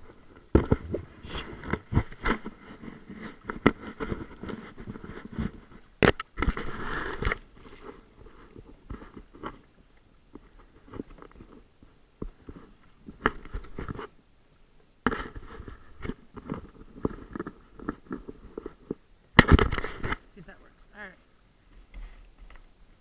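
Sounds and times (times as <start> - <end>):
kayak paddling through water: 0.0 - 23.0.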